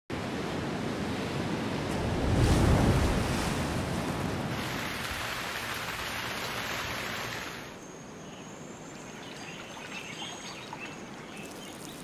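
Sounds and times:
waves crashing: 0:00.1 - 0:07.8.

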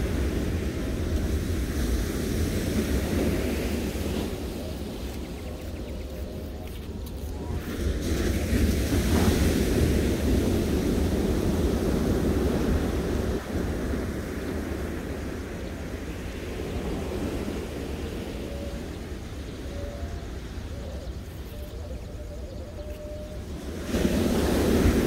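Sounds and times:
wind rumbling on microphone: 0:00.0 - 0:25.0
surf breaking on beach: 0:07.3 - 0:18.2, 0:23.7 - 0:25.0.

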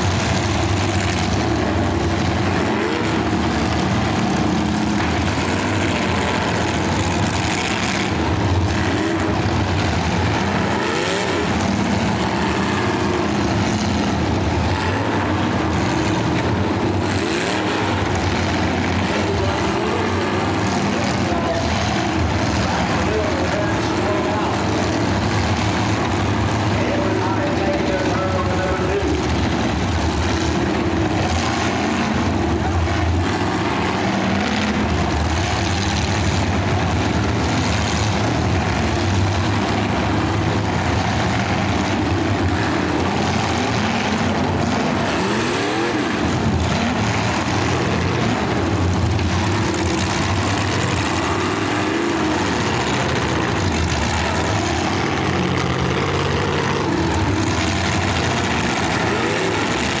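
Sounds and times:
car engines revving: 0:00.0 - 1:00.0.

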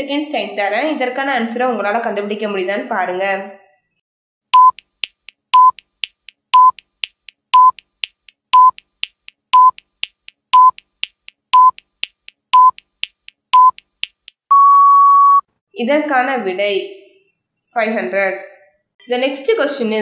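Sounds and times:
short electronic beeps: 0:04.6 - 0:04.9, 0:05.5 - 0:05.9, 0:06.6 - 0:06.9, 0:07.6 - 0:07.8, 0:08.6 - 0:08.8, 0:09.6 - 0:09.8, 0:10.6 - 0:10.8, 0:11.6 - 0:11.8, 0:12.6 - 0:12.9, 0:13.6 - 0:13.9, 0:14.5 - 0:15.5.

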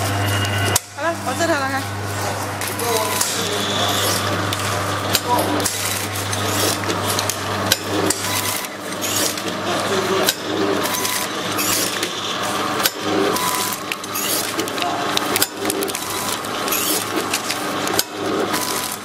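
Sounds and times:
packing machine metallic clicks: 0:12.8 - 0:19.0.

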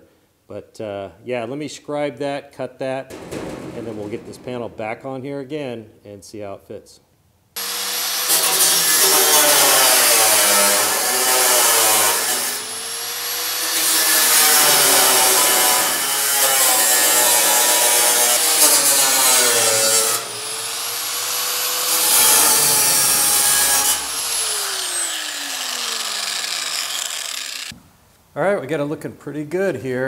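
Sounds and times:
angle grinder cutting sheet metal: 0:07.6 - 0:27.7
grinder motor winding down: 0:24.1 - 0:27.7.

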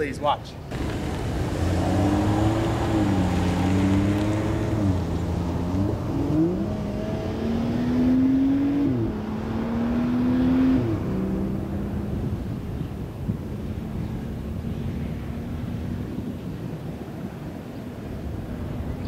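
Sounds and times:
car engine accelerating: 0:00.7 - 0:12.8.

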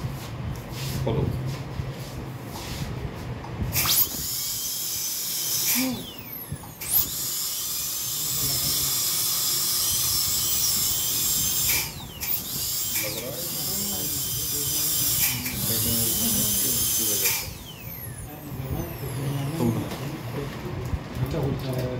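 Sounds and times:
dental drill whining: 0:03.7 - 0:20.2.

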